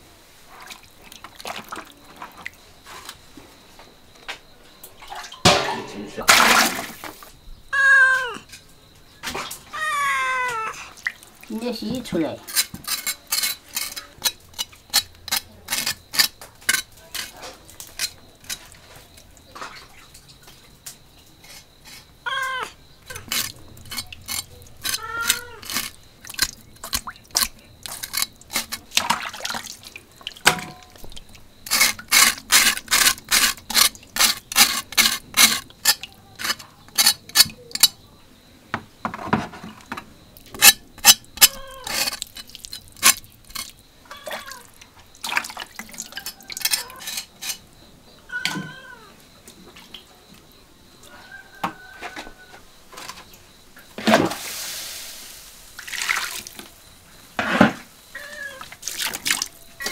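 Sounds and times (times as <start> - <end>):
cleaver scraping pork skin: 12.5 - 18.6, 23.1 - 28.9, 31.6 - 37.9, 40.5 - 43.8, 46.2 - 47.6.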